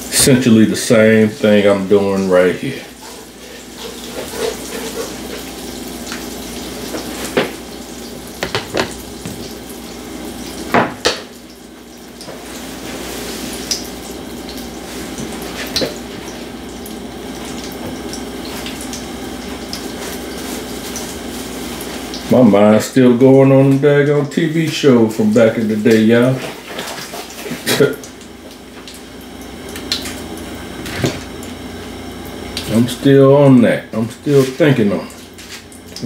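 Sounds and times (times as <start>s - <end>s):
oil sizzling in skillet: 0.0s - 22.3s
spatula scraping pan: 2.7s - 5.8s.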